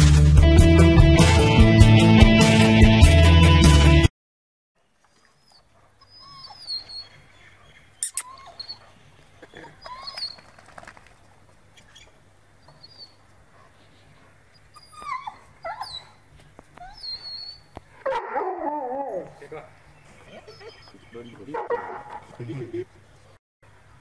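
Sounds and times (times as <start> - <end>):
dog whimpering: 6.0 - 7.1, 8.0 - 8.9, 9.6 - 10.4, 14.6 - 16.2, 16.8 - 17.7, 20.2 - 21.1.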